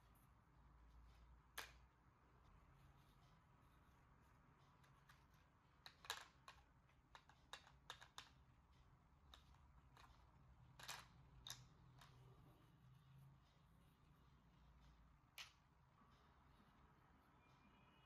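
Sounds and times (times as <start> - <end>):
toy kitchen pieces clicking: 1.6 - 1.8, 4.8 - 8.4, 9.3 - 12.2.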